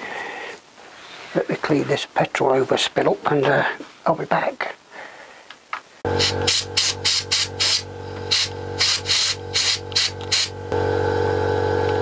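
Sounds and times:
steady mechanical hum: 6.0s - 12.0s
compressed air blow gun blasts: 6.1s - 10.6s.

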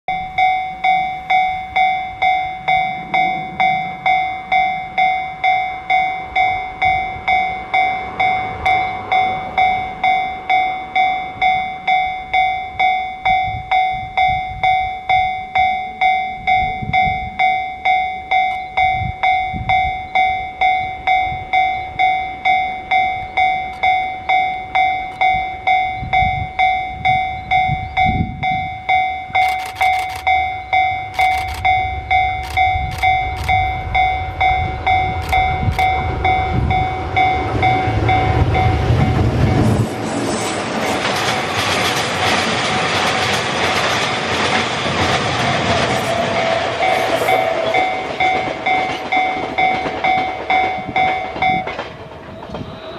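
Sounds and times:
level-crossing bell ringing: 0.1s - 39.9s, 45.6s - 51.8s
train wheels clacking on rails: 0.8s - 52.9s
locomotive low rumble: 18.6s - 40.2s.

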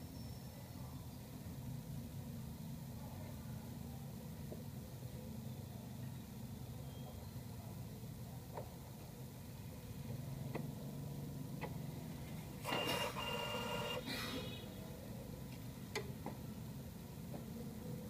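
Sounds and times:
printer hum: 3.6s - 18.0s
printer clicks: 12.6s - 14.0s
printer motor whine: 12.6s - 14.6s.

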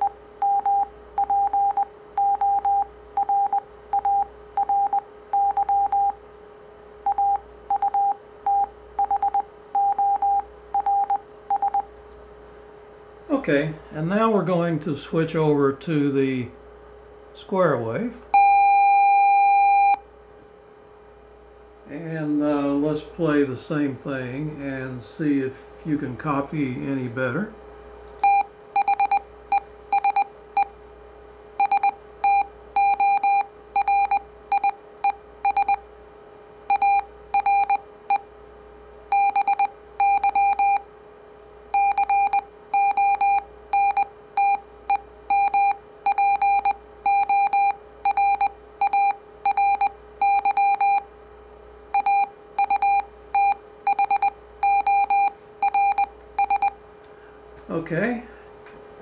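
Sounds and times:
morse code tone: 0.0s - 6.2s, 7.0s - 11.9s, 18.4s - 20.0s, 28.2s - 30.7s, 31.6s - 35.8s, 36.7s - 38.2s, 39.1s - 40.8s, 41.8s - 51.0s, 51.9s - 56.8s
faint hum: 0.0s - 59.0s.

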